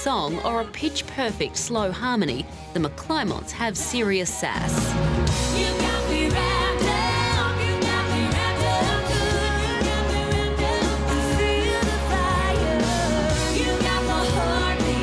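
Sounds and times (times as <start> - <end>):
drums: 0.0 - 15.0
woman singing lead: 0.0 - 15.0
electric bass: 4.5 - 15.0.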